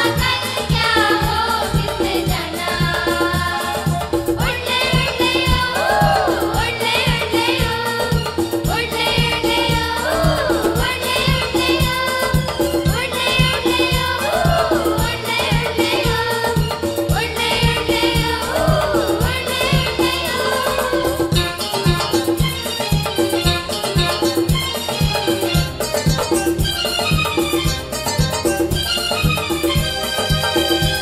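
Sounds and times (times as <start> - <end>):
children's choir singing: 0.0 - 21.7
music with percussion beat: 0.0 - 31.0.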